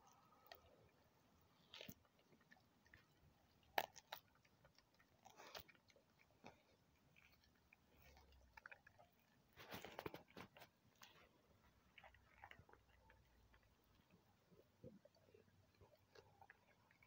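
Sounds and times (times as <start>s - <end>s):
dog crunching bone: 1.5s - 11.2s, 11.8s - 14.2s.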